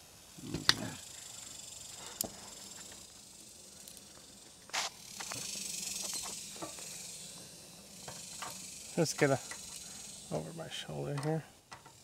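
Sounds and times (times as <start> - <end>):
steady high hiss: 0.0 - 12.0
hand tools clicking on metal: 9.2 - 9.9, 11.0 - 12.0.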